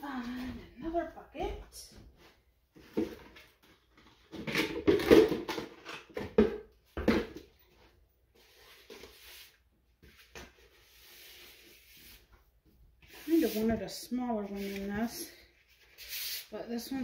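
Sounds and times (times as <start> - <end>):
buckets knocking and clattering: 2.8 - 7.7.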